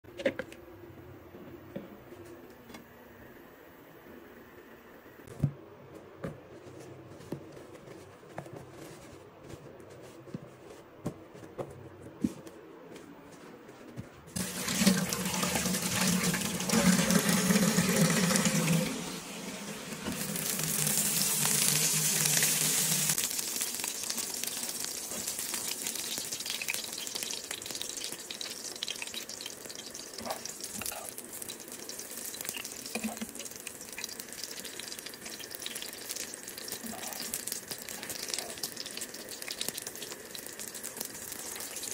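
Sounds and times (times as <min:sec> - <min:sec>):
bread sizzling in oil: 0:14.4 - 0:41.9
water running from tap: 0:14.4 - 0:41.9.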